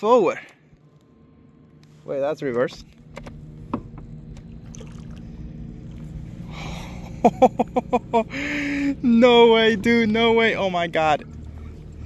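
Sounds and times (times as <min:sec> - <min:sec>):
electric trolling motor hum: 0:02.5 - 0:12.0
propeller churning water: 0:02.9 - 0:12.0
man laughing: 0:06.6 - 0:09.1.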